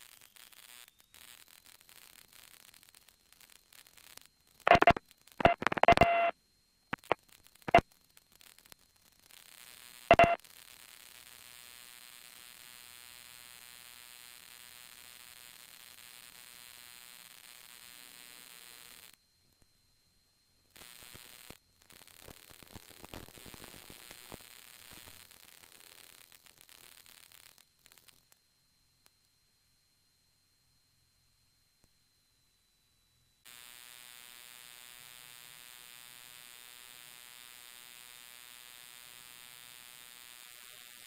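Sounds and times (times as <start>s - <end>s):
buzzing hiss: 0.0s - 6.3s, 6.9s - 13.2s, 20.7s - 28.4s
radio static crackling: 0.0s - 6.3s, 6.9s - 11.2s, 20.8s - 28.3s, 40.3s - 41.0s.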